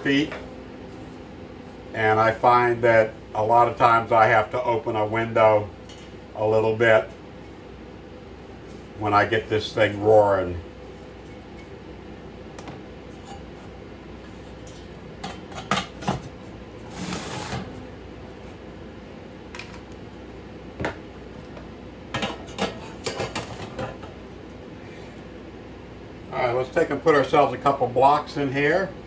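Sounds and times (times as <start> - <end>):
metal scrape: 16.8 - 17.8.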